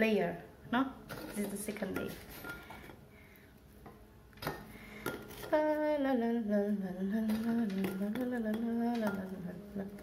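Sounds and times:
woman humming: 5.5s - 10.0s.

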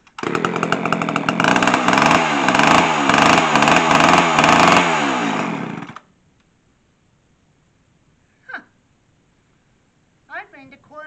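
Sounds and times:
chainsaw engine revving: 0.1s - 6.1s.

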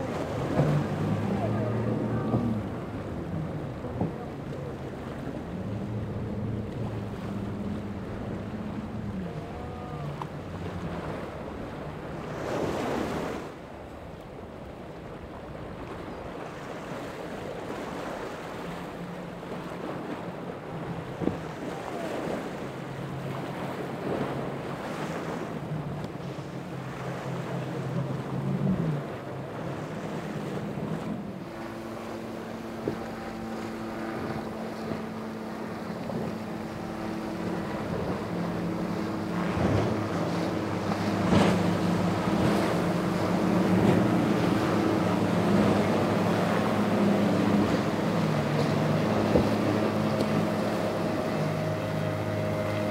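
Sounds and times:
motorboat engine drone: 0.0s - 52.9s
waves washing: 0.0s - 52.9s.

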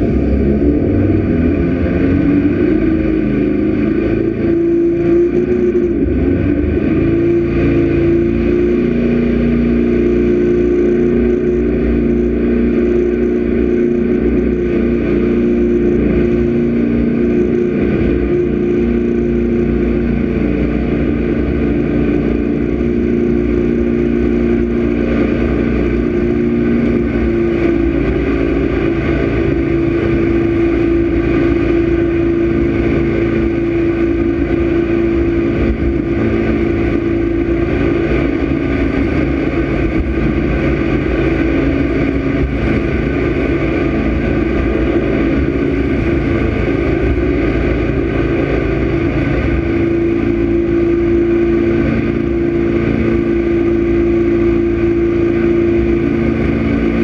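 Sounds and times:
boat engine droning: 0.0s - 57.0s
rushing water: 0.0s - 57.0s.

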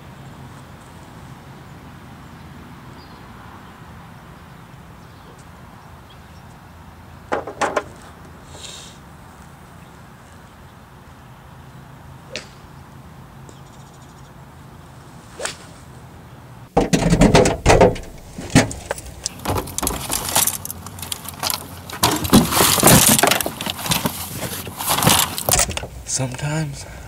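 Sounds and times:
golf club striking ball: 12.3s - 12.6s
gear clattering in car trunk: 16.8s - 26.0s.

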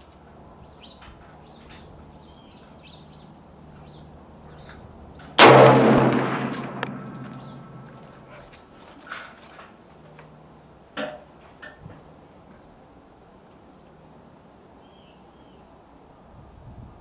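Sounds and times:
rifle shot: 5.4s - 8.2s.

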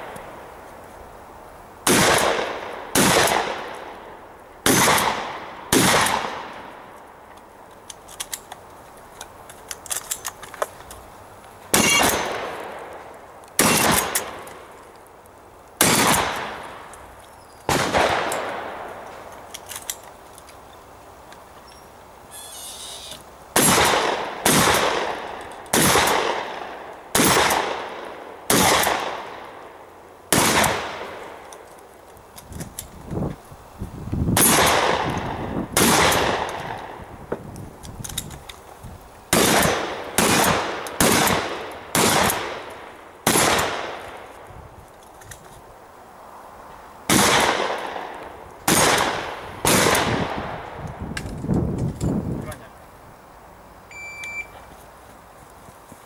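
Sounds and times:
shotgun shots with echo: 1.9s - 3.7s, 4.6s - 6.6s, 11.7s - 12.5s, 13.6s - 14.4s, 15.8s - 16.6s, 17.7s - 18.8s, 23.6s - 29.4s, 30.3s - 31.1s, 34.4s - 36.8s, 39.3s - 42.7s, 43.3s - 44.0s, 47.1s - 48.0s, 48.7s - 50.6s.

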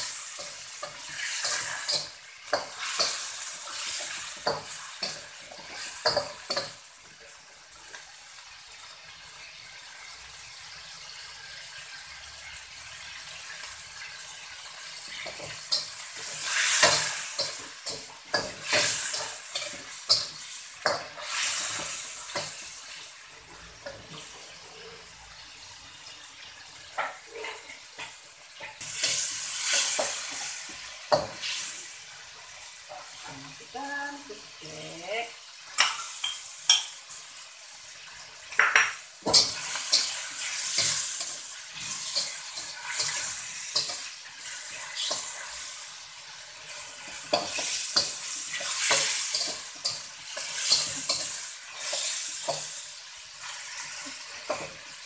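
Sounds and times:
metal spatula scraping a wok: 0.0s - 6.8s, 15.2s - 22.7s, 28.8s - 31.8s, 39.2s - 45.8s, 46.6s - 52.8s
meat sizzling in hot oil: 0.0s - 55.0s.

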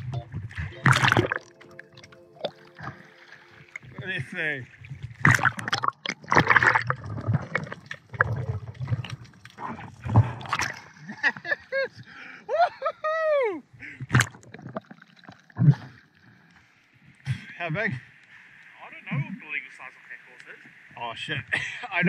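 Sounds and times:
water splashing and gurgling: 0.0s - 11.5s, 14.0s - 16.4s.

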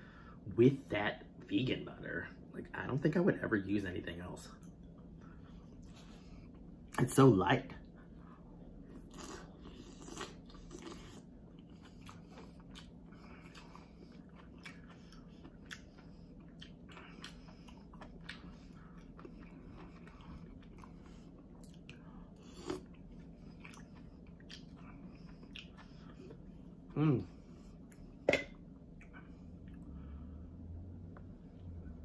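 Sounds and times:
faint chewing: 7.8s - 28.2s, 28.8s - 30.1s.

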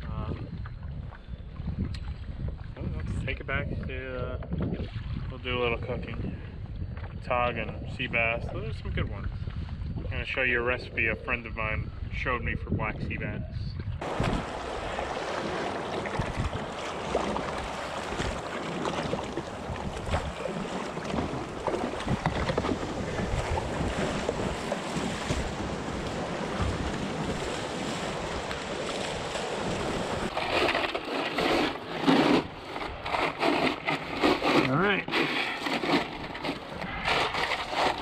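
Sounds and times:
water splashing around kayak: 0.0s - 10.4s, 13.9s - 38.0s
wind buffeting microphone: 0.0s - 31.6s
ice rattling and crunching: 30.3s - 38.0s.

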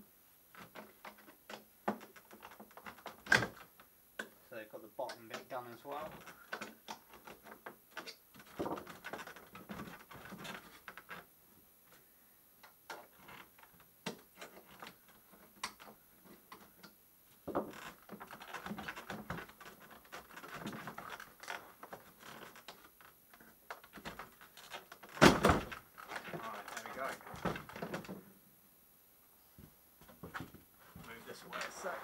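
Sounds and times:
rustling and scraping: 5.1s - 12.1s, 12.9s - 28.3s, 29.4s - 32.0s.

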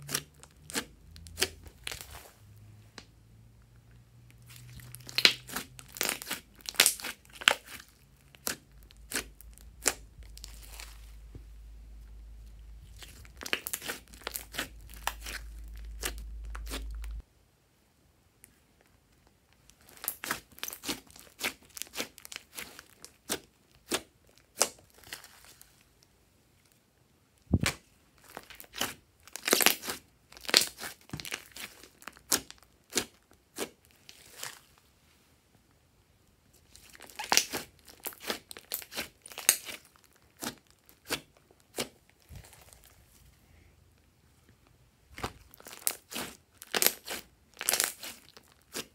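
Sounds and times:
slime crackling and popping: 0.0s - 2.2s, 4.3s - 11.2s, 12.8s - 17.2s, 19.6s - 25.6s, 27.5s - 34.7s, 36.6s - 43.0s, 45.2s - 48.9s
low hum: 14.7s - 17.2s.

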